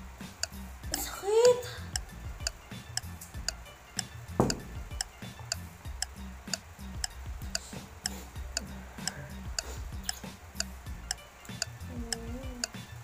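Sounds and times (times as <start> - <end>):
clock-like ticking: 0.4 - 12.8
low repeating bass line: 1.8 - 12.7
loud thump: 4.4 - 4.8.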